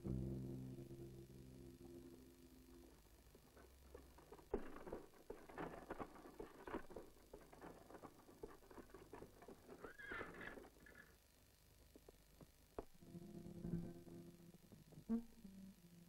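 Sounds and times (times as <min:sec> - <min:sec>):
horse hooves and wagon knocking: 0:02.8 - 0:13.0
wagon squeak: 0:03.9 - 0:11.1.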